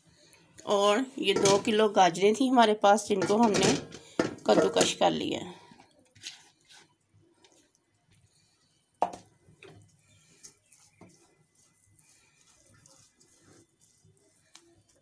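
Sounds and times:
shredded carrot rustling: 10.0 - 15.0.

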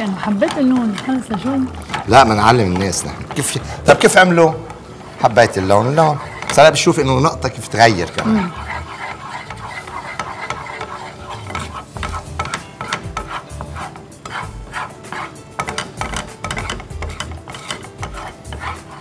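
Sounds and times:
wooden spatula scraping frying pan: 0.0 - 19.0.

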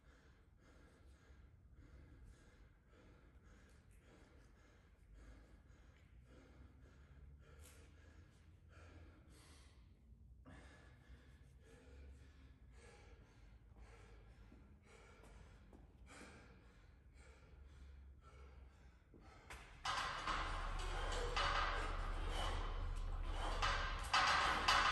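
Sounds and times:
man breathing heavily: 0.0 - 24.9.

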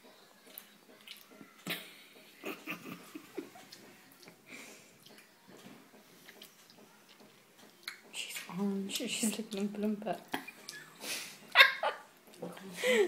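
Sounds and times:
baby eating with wet mouth sounds: 0.1 - 2.3, 3.4 - 10.9.

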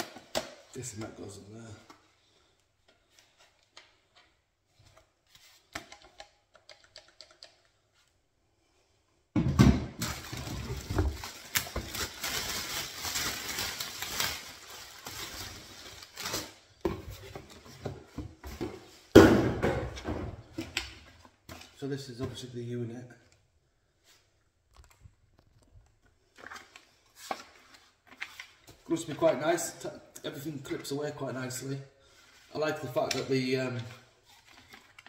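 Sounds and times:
plastic parts clicking together: 5.8 - 7.8
plastic bag crinkling and rustling: 10.0 - 16.8.

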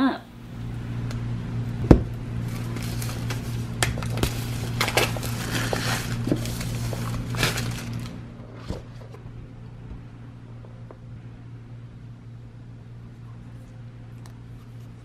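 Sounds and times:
steady low hum: 0.0 - 15.0
plastic wrap crackling and tearing: 2.4 - 8.2.

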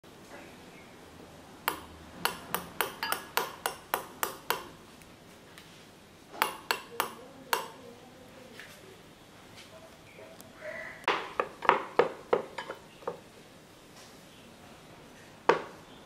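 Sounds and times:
metal spoon clinking against glass: 1.7 - 4.4.

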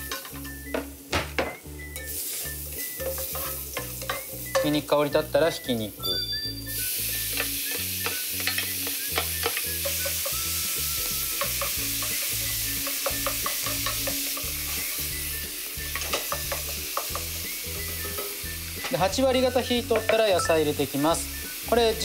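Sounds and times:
spatula scraping and tapping pan: 0.0 - 4.9, 7.2 - 15.2, 15.8 - 20.4
background music with bass: 0.0 - 22.0
meat sizzling in oil: 0.0 - 22.0.

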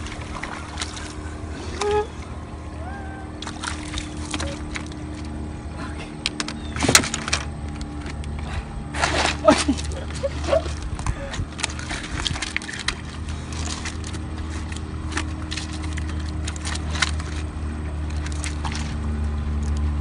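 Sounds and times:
boat engine droning: 0.0 - 20.0
clicks and knocks on rocks: 6.3 - 8.4.

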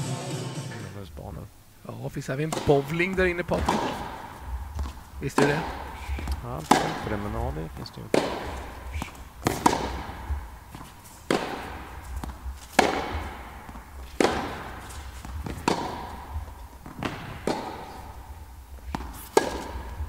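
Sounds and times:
ball bounces: 2.5 - 20.0
tennis ball hit by racket: 2.5 - 20.0
shoe squeaks: 7.8 - 9.7.

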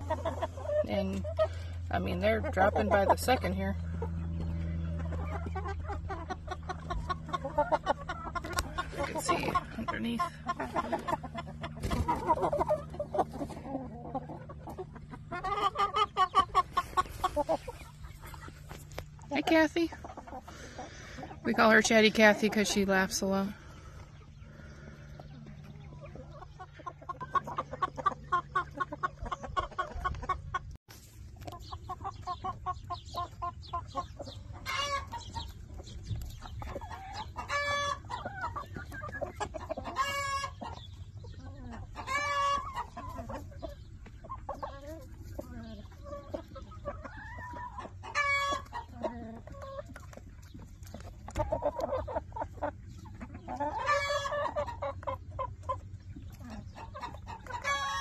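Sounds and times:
chicken drawn-out calls: 0.0 - 58.0
chickens clucking: 0.0 - 58.0.

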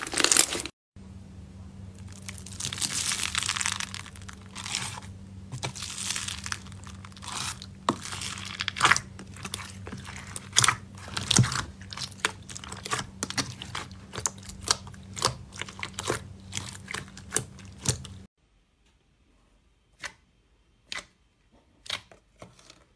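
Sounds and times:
slime crunching and crackling: 0.0 - 0.7, 2.0 - 18.3
faint low hum: 1.0 - 20.8.

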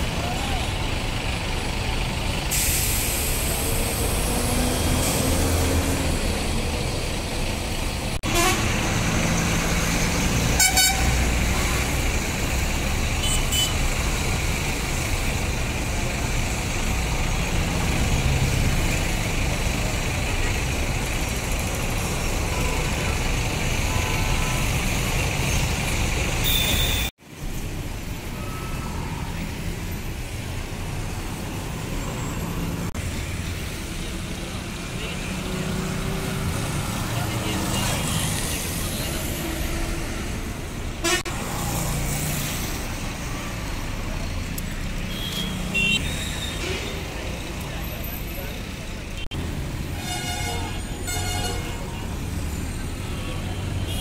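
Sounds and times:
vehicles passing: 0.0 - 54.0
tyres hissing: 2.4 - 7.1.

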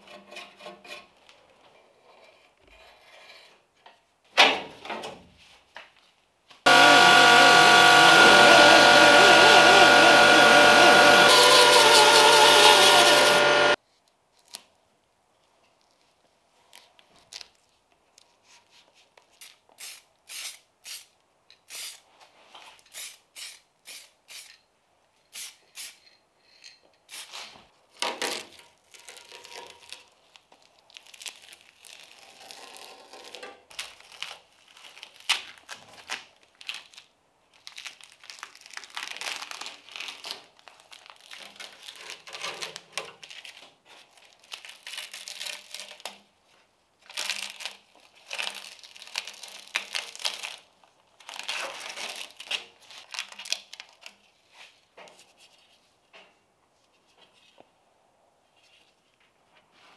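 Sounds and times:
paper and tape crinkling: 28.2 - 55.7
masking tape tearing: 37.6 - 46.2, 47.1 - 54.0.

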